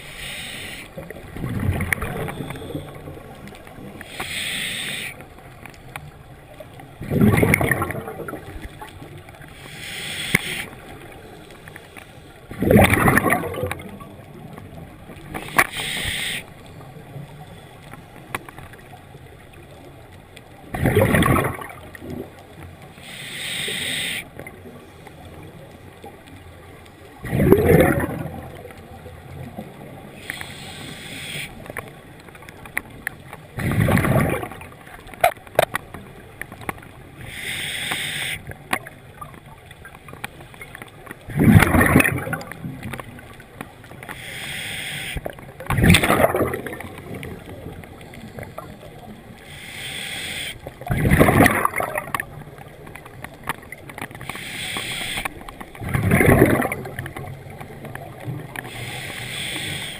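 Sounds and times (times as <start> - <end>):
regulator hissing inhales: 0.0 - 0.9, 4.1 - 5.2, 9.6 - 10.7, 15.7 - 16.5, 23.0 - 24.3, 30.2 - 31.6, 37.2 - 38.4, 44.1 - 45.2, 49.5 - 50.6, 54.3 - 55.3, 58.7 - 59.9
bubbling exhales underwater: 7.0 - 8.6, 12.5 - 14.1, 20.8 - 22.3, 27.2 - 28.6, 41.3 - 42.5, 45.7 - 47.5, 50.8 - 52.3, 55.8 - 57.2.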